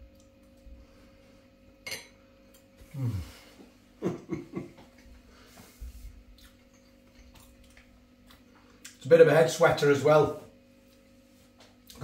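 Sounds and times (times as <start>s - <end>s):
man humming mmm: 2.8s - 4.6s
man chewing: 5.8s - 9.0s.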